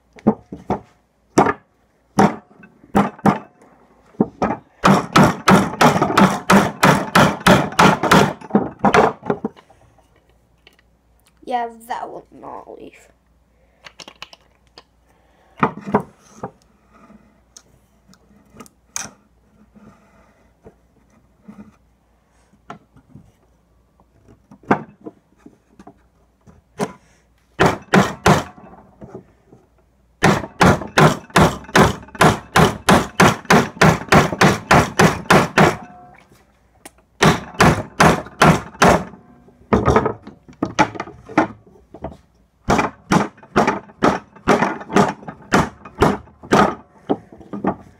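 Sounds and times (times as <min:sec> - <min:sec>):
hammer striking wood: 0:00.2 - 0:03.5, 0:04.2 - 0:09.5, 0:27.6 - 0:28.8, 0:30.2 - 0:36.1, 0:37.2 - 0:41.6, 0:42.7 - 0:47.8.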